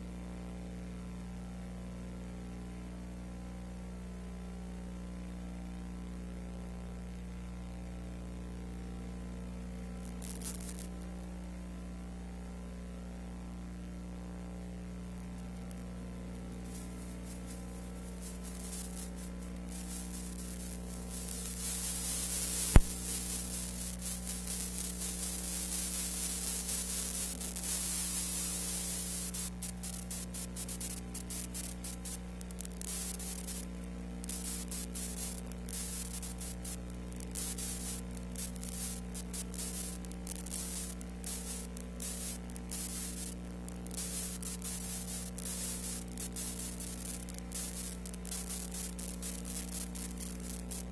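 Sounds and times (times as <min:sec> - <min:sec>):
tape hiss and electrical hum: 0:00.0 - 0:50.9
sharp click: 0:22.7 - 0:23.0.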